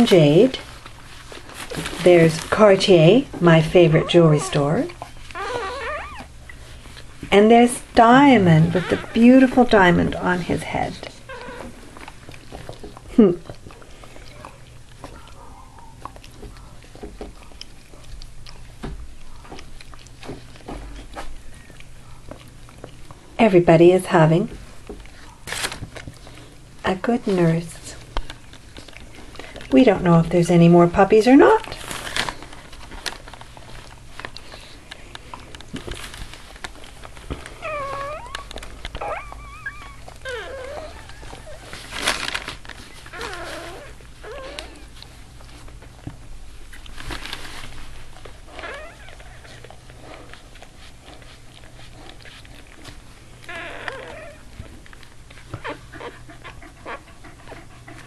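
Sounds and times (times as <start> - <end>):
puppies suckling wet smacks: 3.5 - 58.0
puppy squeaks: 3.8 - 6.3, 8.5 - 9.2, 37.6 - 41.7, 48.6 - 49.2, 53.4 - 54.4.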